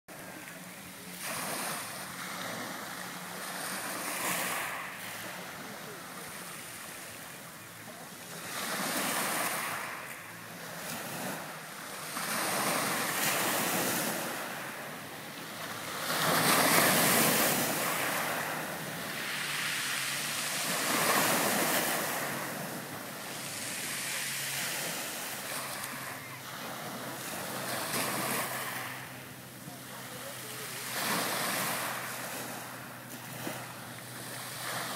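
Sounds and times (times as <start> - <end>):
waves washing onto pebble shore: 0.2 - 34.9.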